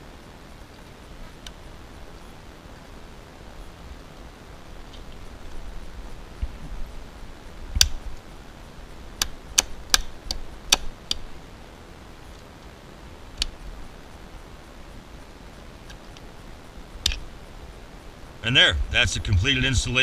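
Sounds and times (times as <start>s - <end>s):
wire cutters snipping steel cable: 9.2s - 11.2s.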